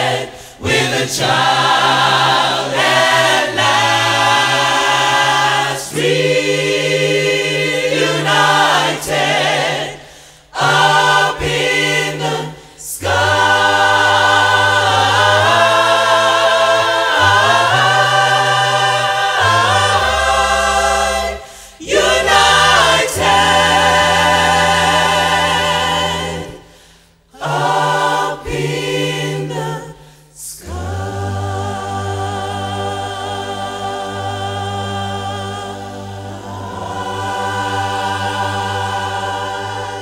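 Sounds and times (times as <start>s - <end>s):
choir singing unaccompanied: 0.0s - 40.0s.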